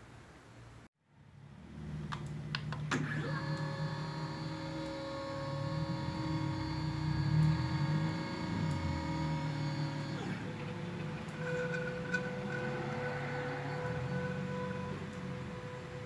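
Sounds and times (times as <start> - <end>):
stepper motors whining: 1.7 - 16.0
stepper motor clicks: 2.1 - 13.1.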